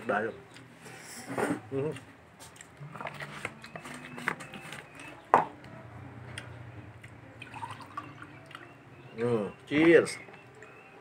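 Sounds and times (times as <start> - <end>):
drink pouring into glass: 7.4 - 8.6.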